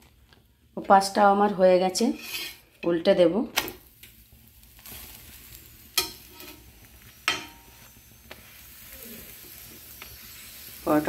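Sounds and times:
flatbread sizzling on griddle: 0:00.0 - 0:02.9, 0:03.6 - 0:11.0
metal spatula clinking on griddle: 0:06.0 - 0:06.6, 0:07.2 - 0:07.8.

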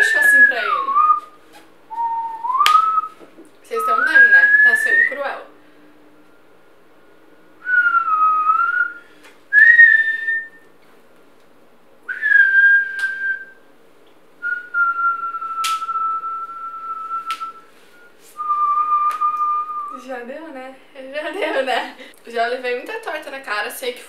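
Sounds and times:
man whistling a slow tune: 0:00.0 - 0:03.2, 0:06.2 - 0:10.6, 0:12.1 - 0:13.7, 0:14.4 - 0:20.0.

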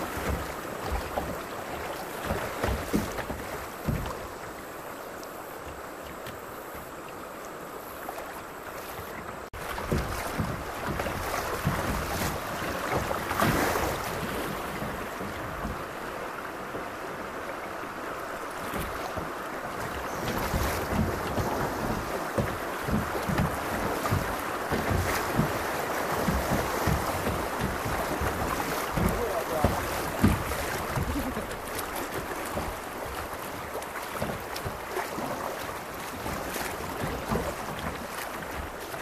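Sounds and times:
creek water rushing and splashing: 0:00.0 - 0:39.0
dull low thumps: 0:20.1 - 0:25.6.

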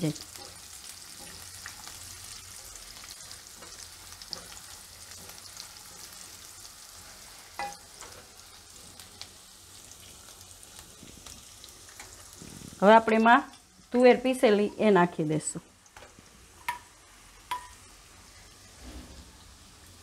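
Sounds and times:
food sizzling in oil in a pan: 0:00.0 - 0:20.0
spatula stirring in a pan: 0:00.2 - 0:13.2.

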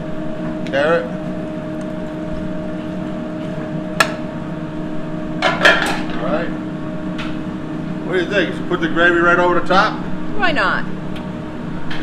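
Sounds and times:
kitchen equipment hum: 0:00.0 - 0:12.0.

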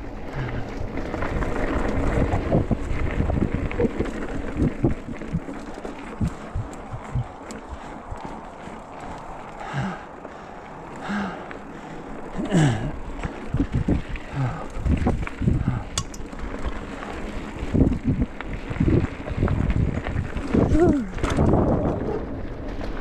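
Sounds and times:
bike jolting and rattling: 0:00.0 - 0:23.0
wind on microphone: 0:00.4 - 0:08.4, 0:13.4 - 0:16.2, 0:17.6 - 0:22.4.

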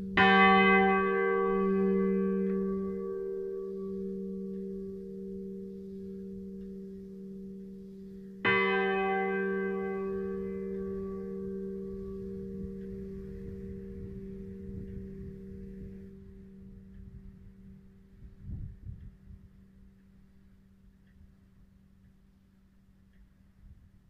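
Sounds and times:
church bell ringing: 0:00.0 - 0:18.6.

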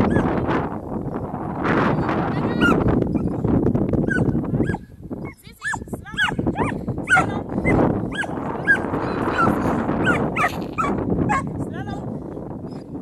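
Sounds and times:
dog yipping and whining: 0:01.9 - 0:03.4, 0:04.1 - 0:11.4.

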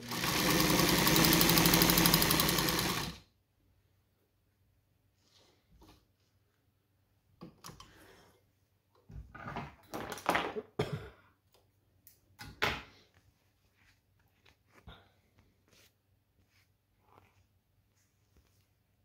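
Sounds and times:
fabric rustling and scraping: 0:13.0 - 0:19.0.

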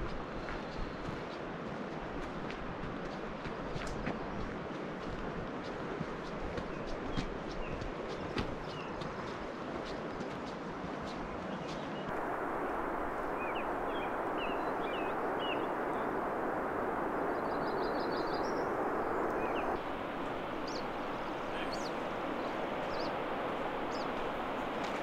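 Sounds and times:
rushing hiss of outdoor ambience: 0:00.0 - 0:25.0
small birds chirping: 0:06.7 - 0:09.4, 0:11.1 - 0:25.0.

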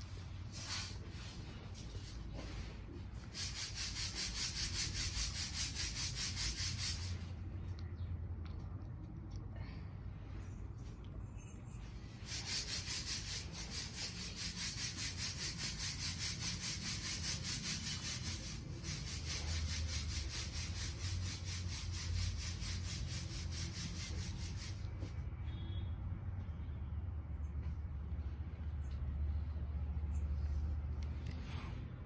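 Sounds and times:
rapid rasping strokes: 0:00.5 - 0:07.4, 0:12.2 - 0:25.0.

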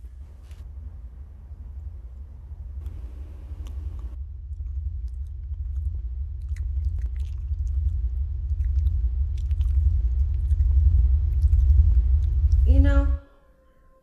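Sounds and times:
low rumble: 0:00.0 - 0:13.2
wet chewing and smacking: 0:02.8 - 0:12.6.

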